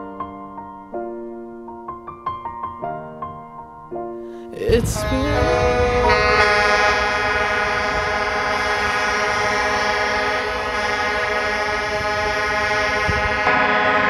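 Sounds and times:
air horns sounding a chord: 4.6 - 14.0.

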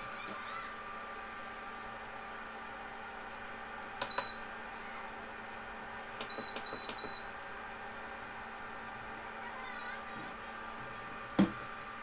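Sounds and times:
cooling fan hum: 0.0 - 12.0
control panel beeps: 4.0 - 4.4, 6.2 - 7.3.

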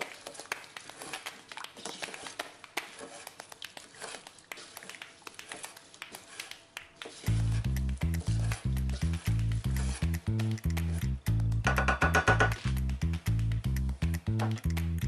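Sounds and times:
light clicks and scrapes: 0.0 - 10.1
wooden spoon stirring rice: 0.0 - 10.6
music with deep bass line: 7.3 - 15.0.

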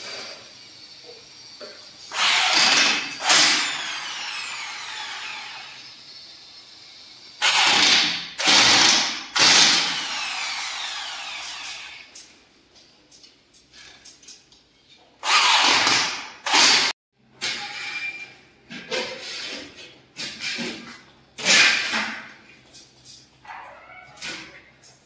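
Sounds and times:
electric drill whining: 0.0 - 12.1.

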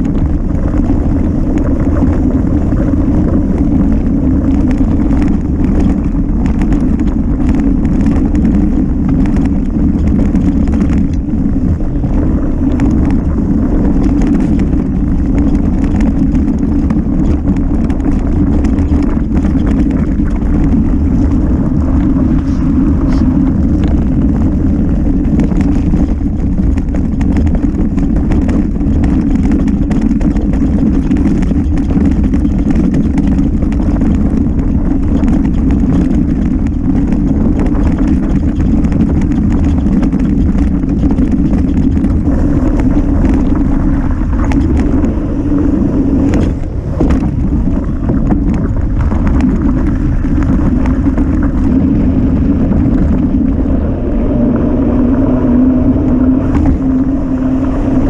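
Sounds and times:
bike rattles and knocks: 0.0 - 54.4
tyre rumble: 0.0 - 58.0
wind buffeting microphone: 0.0 - 58.0.

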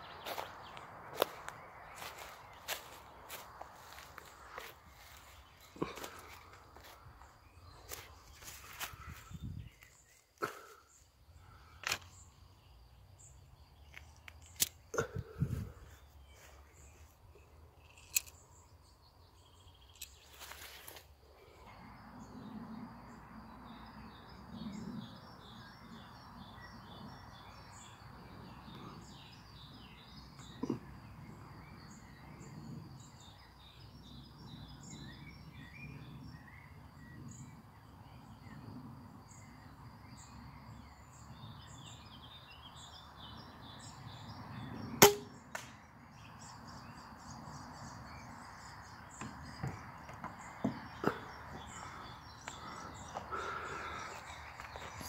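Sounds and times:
birds chirping: 0.0 - 55.0
insects chirping: 0.0 - 55.0
crossbow pistol firing snap: 45.0 - 45.8.

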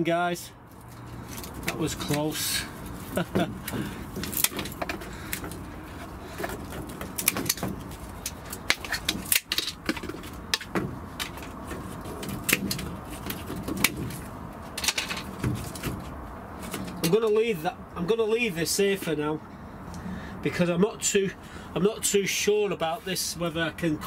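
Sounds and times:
rustle of stems and twigs: 0.7 - 17.0
pruning secateurs snipping: 0.9 - 14.0.

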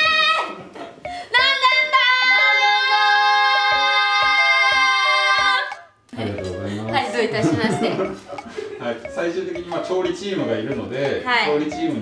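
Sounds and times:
women singing vocal warm-up: 1.3 - 8.2.

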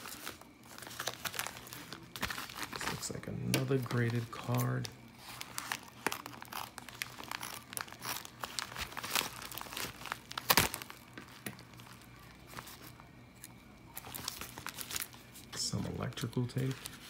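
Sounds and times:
plastic mailer crinkling: 0.0 - 17.0
scissors cutting plastic: 5.5 - 11.6.

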